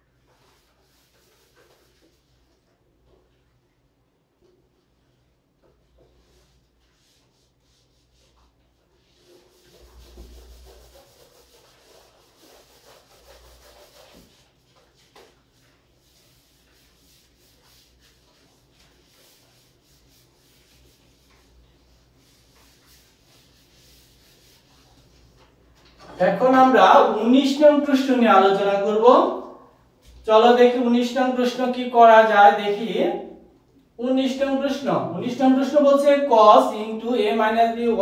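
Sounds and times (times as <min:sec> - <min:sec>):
eraser rubbing on board: 0:06.5 - 0:25.3.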